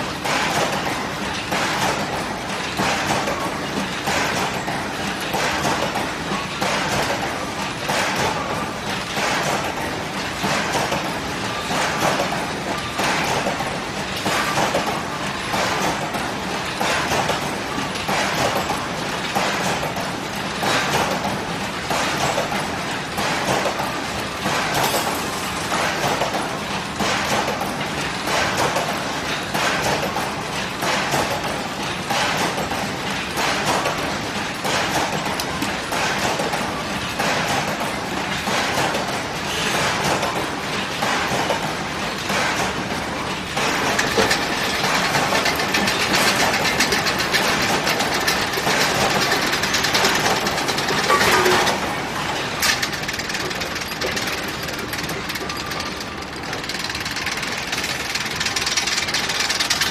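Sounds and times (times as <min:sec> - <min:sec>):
metallic clacks: 0:42.2 - 0:59.9
fence machine clattering: 0:43.6 - 0:59.9.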